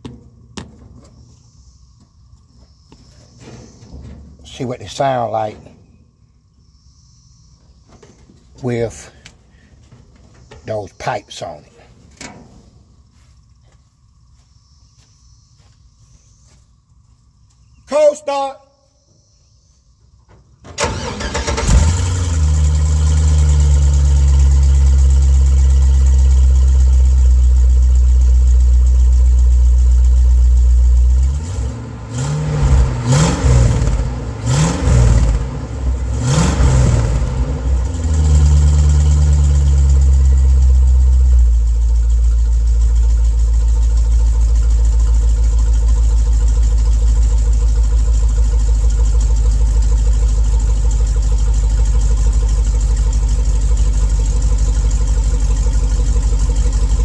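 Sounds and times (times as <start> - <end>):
starter motor cranking: 20.7 - 23.4
engine idling and revving: 20.8 - 57.0.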